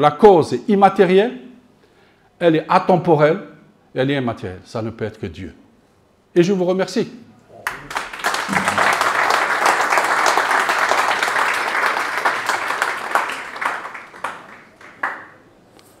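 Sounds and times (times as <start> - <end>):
audience applauding: 7.6 - 15.4.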